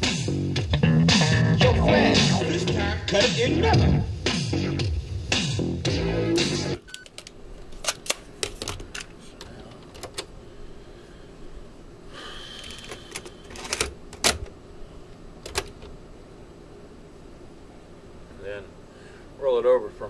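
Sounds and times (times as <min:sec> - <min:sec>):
cassette loaded into deck: 0:06.8 - 0:10.3, 0:12.9 - 0:14.5
cassette transport keys pressed: 0:12.9 - 0:14.5, 0:15.4 - 0:16.0.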